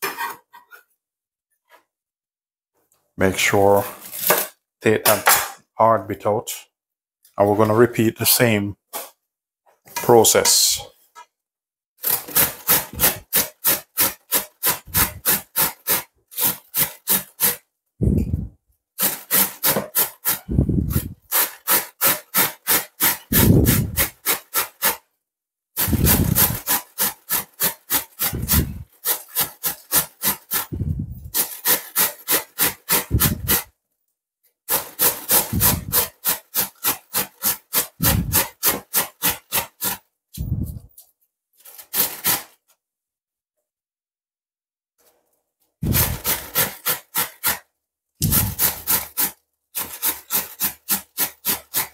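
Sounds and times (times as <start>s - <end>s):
cabbage rasping on a grater: 12.0s - 17.6s, 19.0s - 25.0s, 25.8s - 33.7s, 34.7s - 40.0s, 41.6s - 42.5s, 45.8s - 47.6s, 48.2s - 51.9s.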